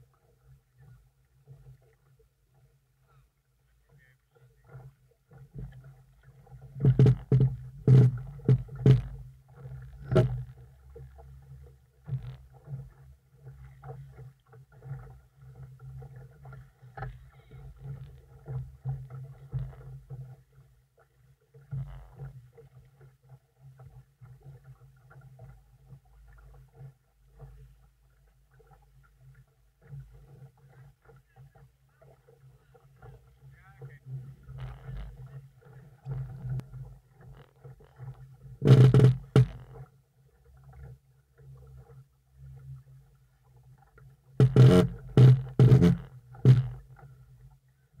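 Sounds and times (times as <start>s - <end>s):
water lapping against boat hull: 0.0s - 48.0s
sharp knocks: 38.7s - 39.6s, 44.4s - 46.8s.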